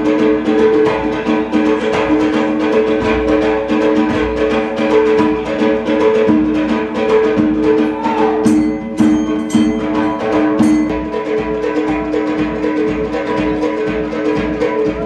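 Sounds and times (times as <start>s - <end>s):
fast drum strokes: 0.0s - 15.0s
bright ringing strikes: 8.4s - 11.2s.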